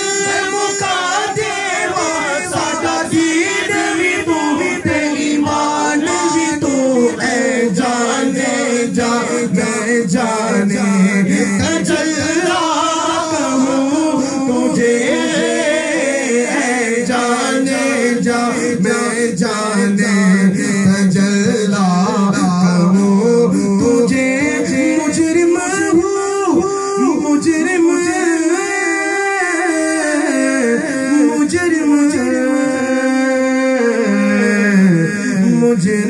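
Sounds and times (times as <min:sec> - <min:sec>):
two men singing unaccompanied: 0:00.0 - 0:36.0.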